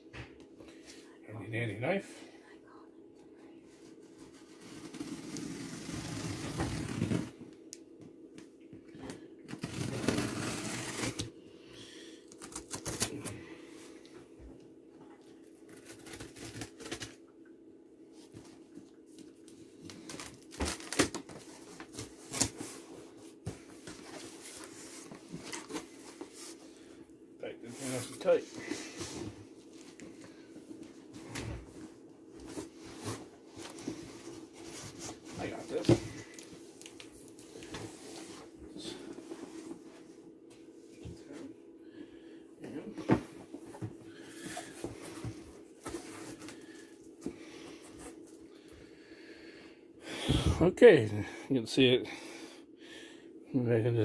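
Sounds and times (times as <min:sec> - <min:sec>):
cardboard rubbing and scraping: 0:04.3 - 0:07.3, 0:09.6 - 0:11.3
knife slitting packing tape: 0:09.5 - 0:11.3.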